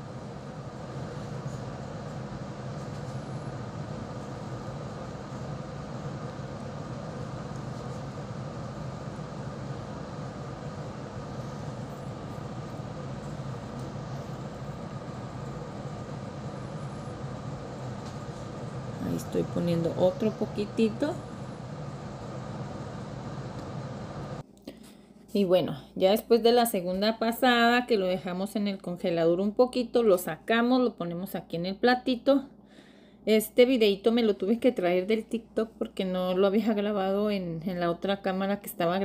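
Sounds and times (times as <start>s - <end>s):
motor humming: 0.0s - 24.4s.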